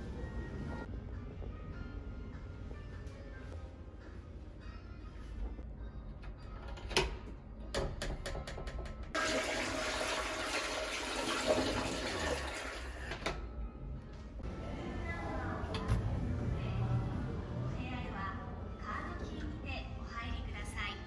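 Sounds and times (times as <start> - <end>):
toilet flushing: 9.1 - 13.2.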